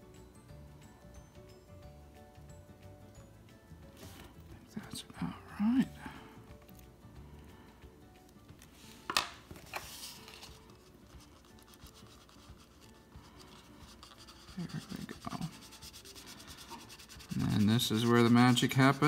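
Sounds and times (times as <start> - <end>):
tool scratching on tissue: 9.9 - 19.0.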